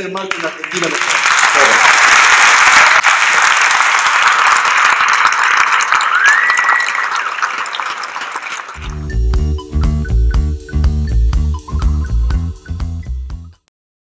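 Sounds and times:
audience applauding: 0.0s - 9.0s
short rising whistle: 6.0s - 7.2s.

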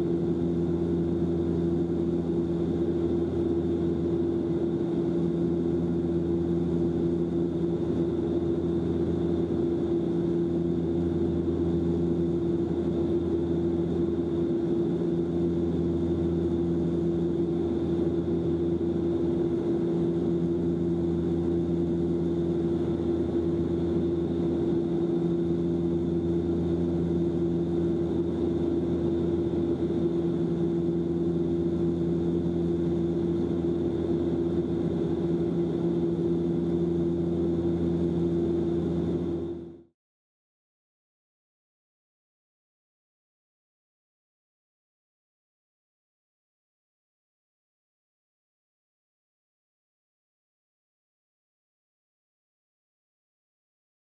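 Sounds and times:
propeller plane cabin drone: 0.0s - 39.9s.

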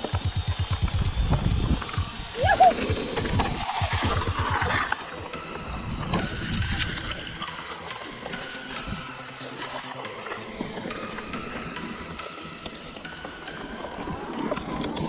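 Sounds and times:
bike rattling: 0.0s - 8.3s
wind on microphone: 0.7s - 4.9s.

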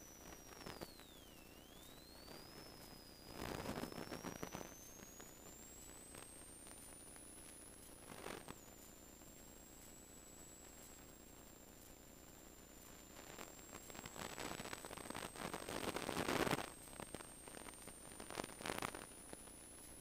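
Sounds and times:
high-pitched electronic whistle: 0.0s - 6.5s
burst of static noise: 0.0s - 20.0s.

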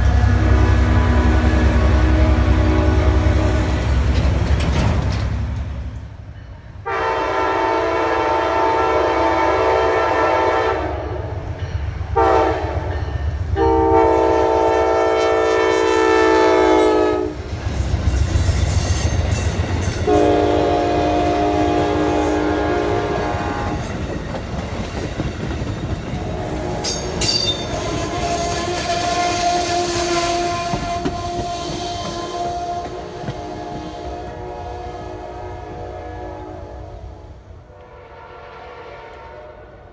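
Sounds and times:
train horn blasts: 0.0s - 4.0s, 6.8s - 11.4s, 12.1s - 17.4s, 20.0s - 23.9s, 26.2s - 39.9s
wheels clacking on rails: 0.0s - 6.8s, 16.5s - 34.4s.

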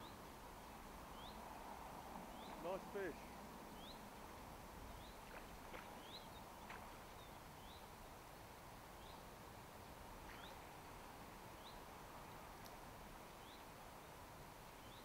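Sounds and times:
faint ticks: 12.5s - 12.8s.

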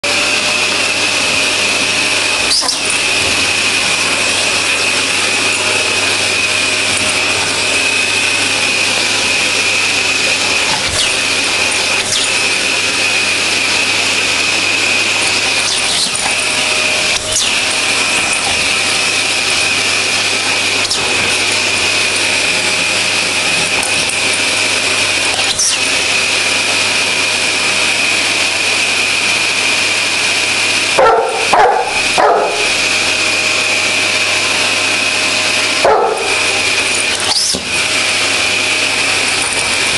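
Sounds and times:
vacuum cleaner whining: 0.0s - 39.9s
dog barking loudly: 31.0s - 32.7s, 35.8s - 36.6s.

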